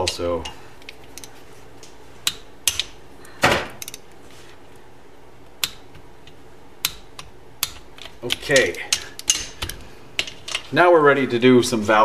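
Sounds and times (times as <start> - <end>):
hand tools clicking on metal: 0.0 - 1.4, 2.2 - 3.0, 3.8 - 4.1, 5.6 - 10.8.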